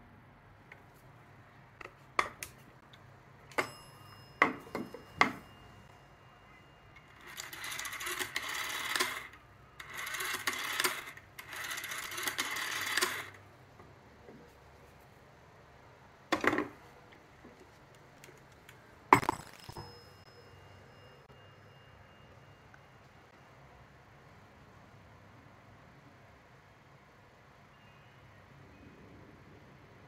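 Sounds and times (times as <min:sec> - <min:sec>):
rotary telephone dial whirring: 0:06.9 - 0:13.4
thin high tone: 0:19.3 - 0:23.4.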